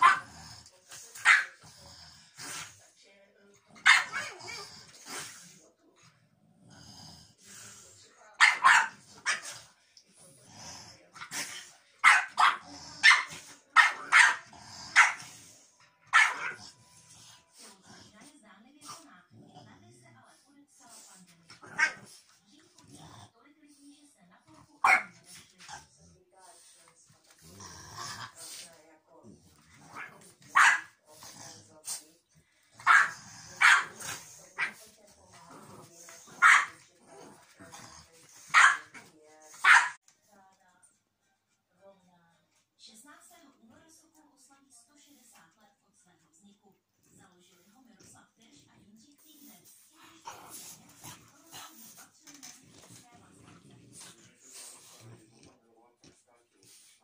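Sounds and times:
dog barking: 0.0s - 0.3s, 1.2s - 1.6s, 3.8s - 4.4s, 8.4s - 9.6s, 12.0s - 15.3s, 16.1s - 16.7s, 21.7s - 22.1s, 24.8s - 25.2s, 30.0s - 31.0s, 32.8s - 34.8s, 36.3s - 36.8s, 38.5s - 40.0s.

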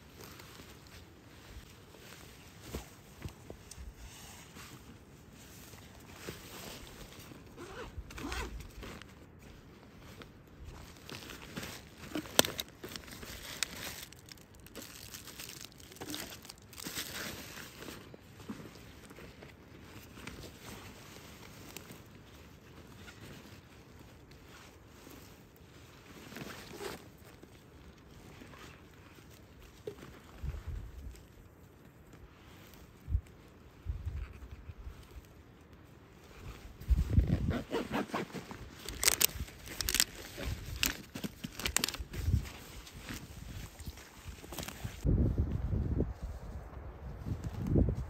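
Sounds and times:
rustling: 0.0s - 45.1s
soft crackles: 0.0s - 48.0s
dry undergrowth crunching: 8.2s - 22.1s, 36.6s - 45.1s.

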